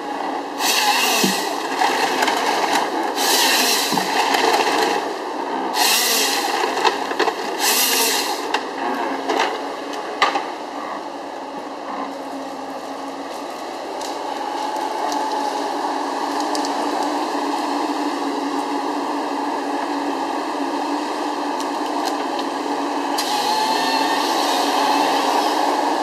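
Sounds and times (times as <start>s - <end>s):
machine engine drone: 0.0s - 26.0s
chain saw cutting a log: 0.6s - 1.6s, 3.2s - 4.1s, 5.7s - 6.5s, 7.6s - 8.5s, 23.2s - 25.8s.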